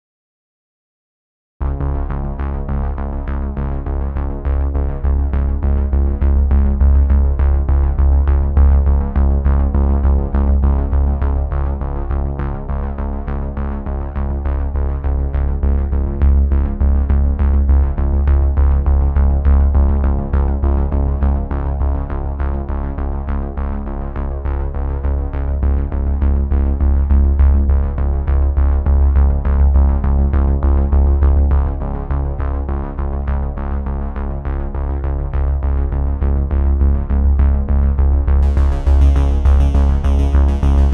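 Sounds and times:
electronic music: 38.4s - 40.9s.

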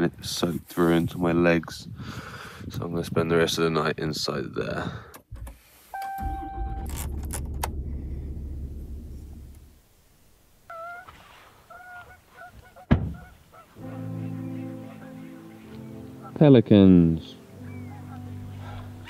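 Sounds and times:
electronic chime: 6.0s - 6.9s
truck engine running: 6.2s - 10.6s
honking bird calls: 10.6s - 19.0s.

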